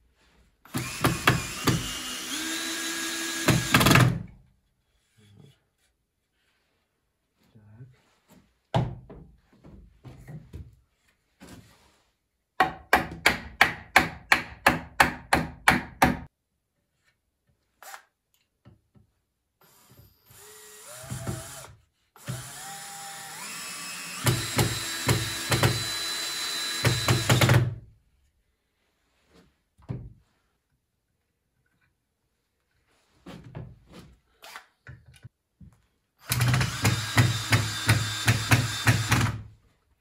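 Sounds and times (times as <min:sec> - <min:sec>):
cordless drill whining: 0:00.7 - 0:04.1, 0:19.6 - 0:27.6, 0:36.2 - 0:39.4.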